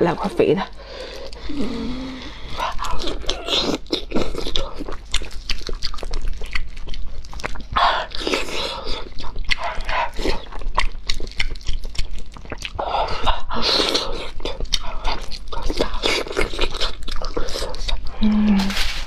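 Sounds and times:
chewing soft food: 0:00.2 - 0:19.0
slurping: 0:07.4 - 0:19.0.

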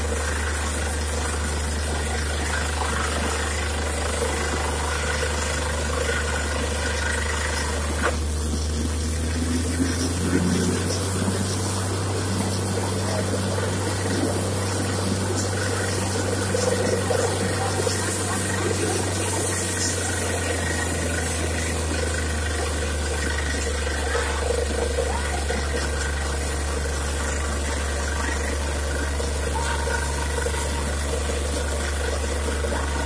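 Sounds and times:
drilling rig droning: 0:00.0 - 0:33.0
water splashing and spraying: 0:00.0 - 0:33.0.

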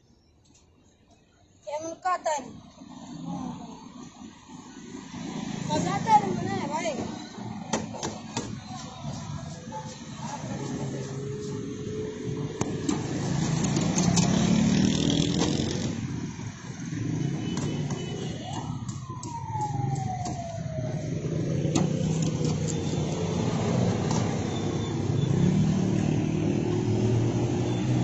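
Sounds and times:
street traffic engines: 0:00.0 - 0:28.0
siren-like tone: 0:16.9 - 0:26.5.

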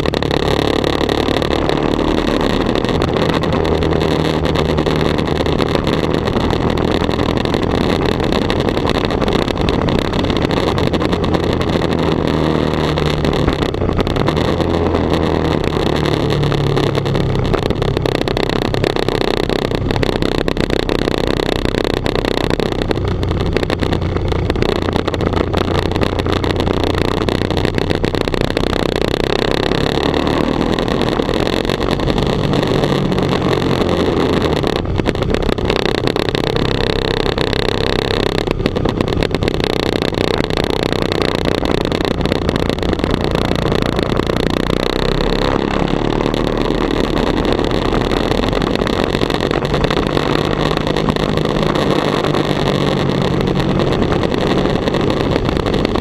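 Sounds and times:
motorcycle engine revving: 0:00.0 - 0:56.0
wind and road noise: 0:00.0 - 0:56.0.

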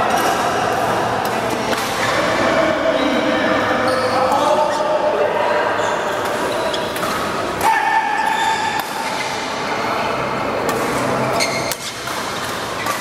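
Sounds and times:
rackets striking shuttlecock: 0:00.1 - 0:02.0, 0:06.1 - 0:09.4, 0:10.6 - 0:13.0
players' high calls: 0:07.6 - 0:09.4.

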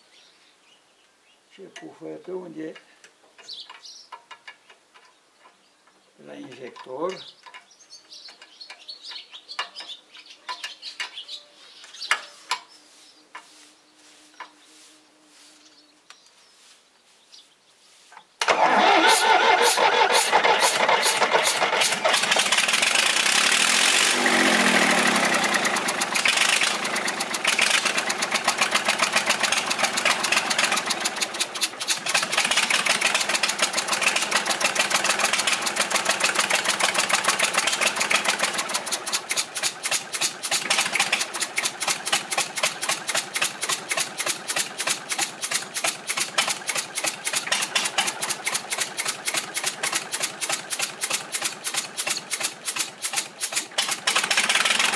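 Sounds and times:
diesel engine clattering: 0:18.4 - 0:54.9.

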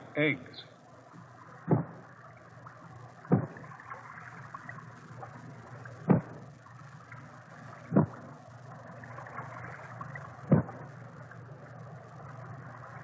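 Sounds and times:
steady watery hiss: 0:00.0 - 0:13.0.

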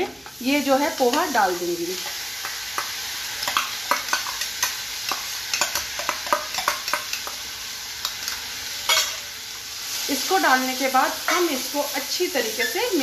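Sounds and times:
food sizzling in a pan: 0:00.0 - 0:13.0
spatula tapping on steel: 0:02.4 - 0:07.4.

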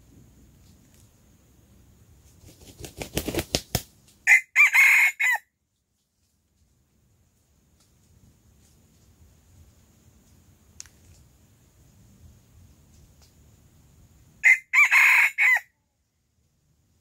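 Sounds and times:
rooster wings beating: 0:02.2 - 0:04.3
rooster crowing: 0:04.2 - 0:05.4, 0:14.4 - 0:15.7.

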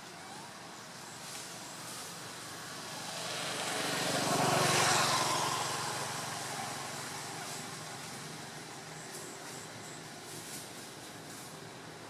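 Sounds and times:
vehicle engine passing by: 0:01.3 - 0:10.0.

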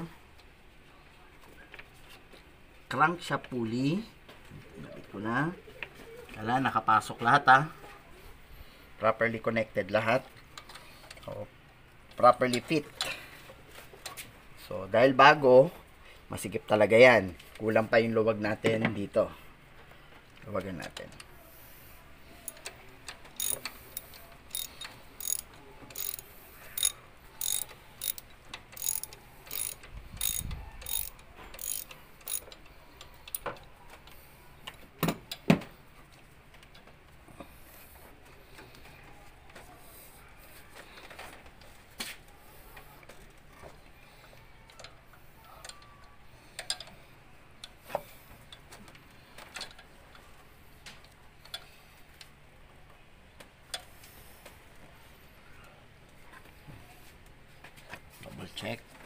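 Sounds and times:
ratchet wrench clicking: 0:23.4 - 0:33.5.

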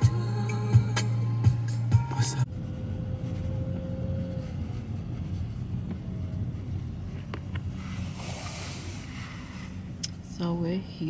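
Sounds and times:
engine and road rumble: 0:00.0 - 0:11.0
air hiss: 0:07.8 - 0:09.9.

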